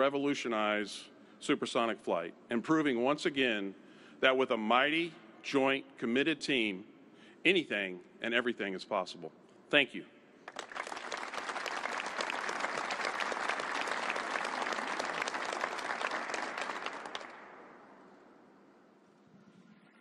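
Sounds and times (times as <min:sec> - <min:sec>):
audience applauding: 0:10.5 - 0:17.9.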